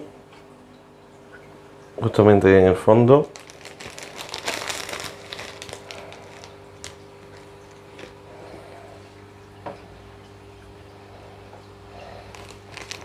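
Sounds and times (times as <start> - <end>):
low electrical hum: 0.0 - 13.0
plastic container crinkling and rattling: 3.2 - 8.1, 12.3 - 13.0.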